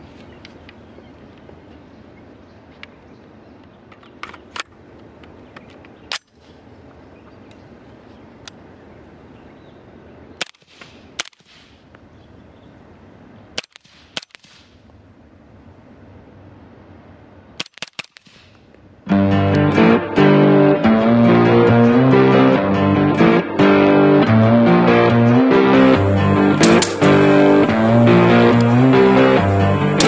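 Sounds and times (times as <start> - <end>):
suppressed rifle shots: 26.5 - 27.7.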